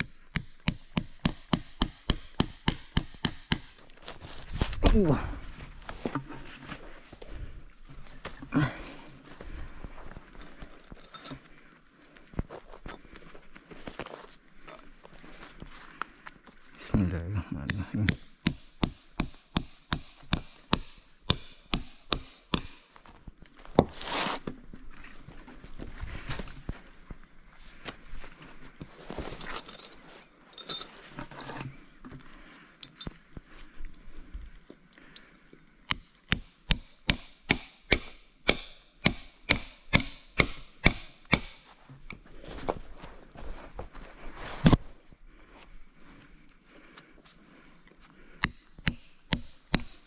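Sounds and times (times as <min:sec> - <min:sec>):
hammer striking nail: 0:00.0 - 0:03.8, 0:17.7 - 0:22.9, 0:35.9 - 0:41.7, 0:48.4 - 0:50.0
rustle: 0:03.7 - 0:17.0, 0:22.8 - 0:35.8, 0:41.1 - 0:48.4.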